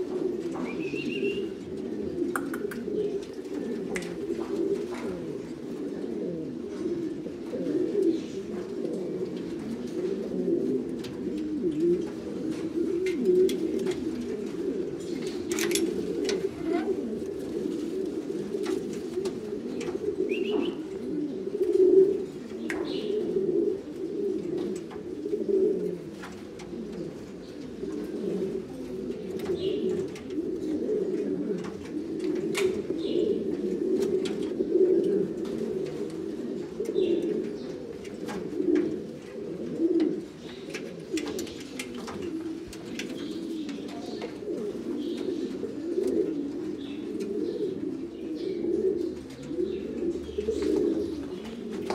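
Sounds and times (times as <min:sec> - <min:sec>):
pigeons cooing: 0:00.0 - 0:51.9
faint sharp clicks: 0:02.3 - 0:03.0, 0:03.8 - 0:04.3.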